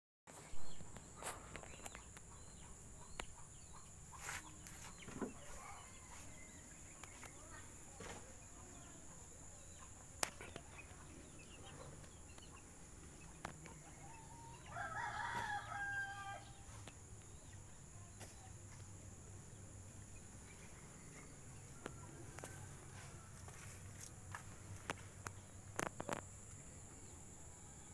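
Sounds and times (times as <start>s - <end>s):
rooster crowing: 14.0s - 16.6s.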